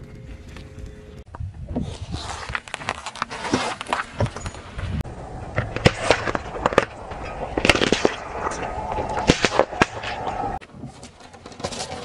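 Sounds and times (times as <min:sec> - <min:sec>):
grit crunching under tyre: 0:01.8 - 0:12.0
tyre rolling low rumble: 0:03.2 - 0:12.0.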